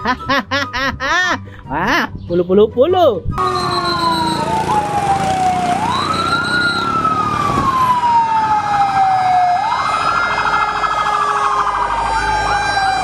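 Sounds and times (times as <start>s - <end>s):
fast siren warble: 3.4s - 13.0s
fire engine sirens wailing: 3.4s - 13.0s.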